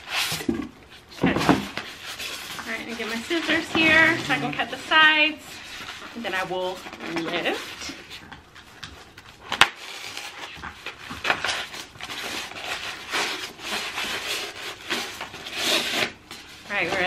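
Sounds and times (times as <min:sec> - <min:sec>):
scissors cutting cardboard: 0:09.5 - 0:17.0.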